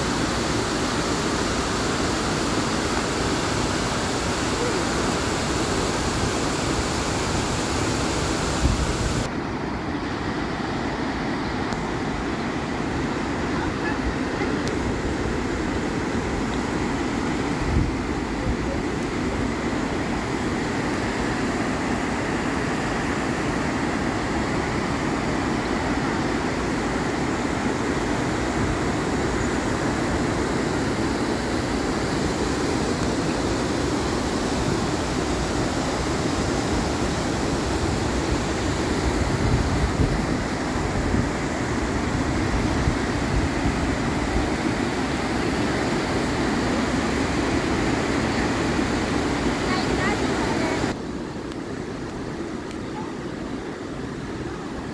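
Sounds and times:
waterfall roaring: 0.0 - 54.9.

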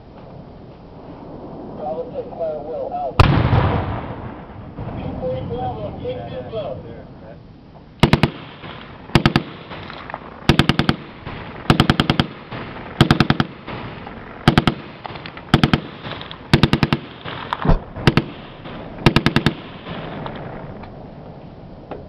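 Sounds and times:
heavy deep gunshot report: 3.2 - 6.2
machine gun firing bursts: 8.0 - 20.6.

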